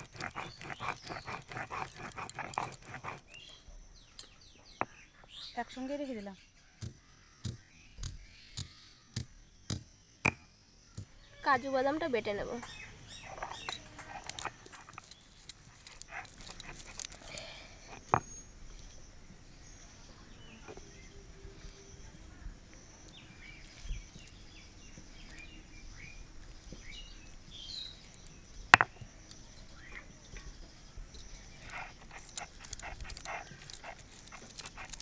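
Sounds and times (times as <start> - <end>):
grinding stone scraping nuts: 0.0 - 3.6, 12.6 - 18.9, 28.0 - 29.8, 31.1 - 35.0.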